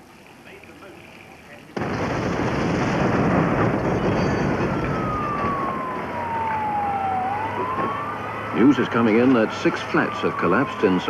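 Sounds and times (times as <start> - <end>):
loud rush of explosion noise: 1.8 - 7.9
emergency vehicle siren wailing: 4.2 - 11.0.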